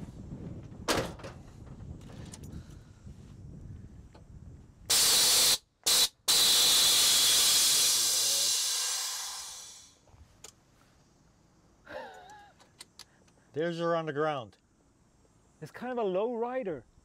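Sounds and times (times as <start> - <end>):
loud hiss of air venting: 4.9 - 10.1.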